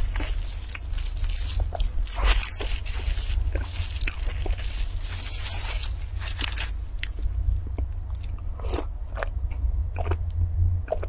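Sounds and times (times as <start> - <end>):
plastic gloves and wrap crinkling: 0.0 - 7.3
biting and chewing: 0.0 - 11.0
low hum: 0.0 - 11.0
swallowing gulps: 7.0 - 11.0.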